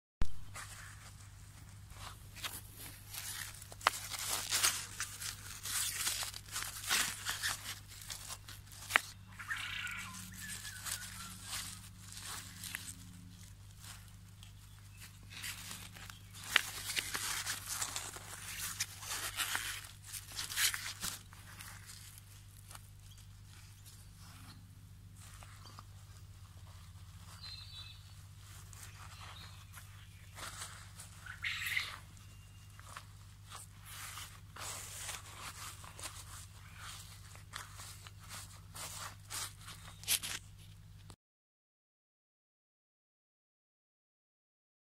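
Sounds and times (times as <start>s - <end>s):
soil crunching and rustling: 0.2s - 41.1s
steady low hum: 0.4s - 41.0s
plastic tray crinkling: 2.0s - 9.2s, 10.1s - 23.2s.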